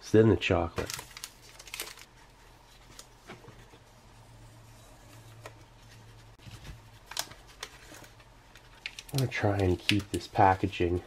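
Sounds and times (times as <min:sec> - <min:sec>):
chocolate wrapper rustling: 0:00.8 - 0:03.2, 0:07.0 - 0:10.7.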